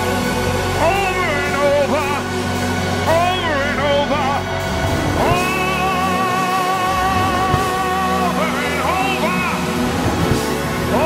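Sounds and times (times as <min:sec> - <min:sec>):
gospel music chords: 0:00.0 - 0:11.0.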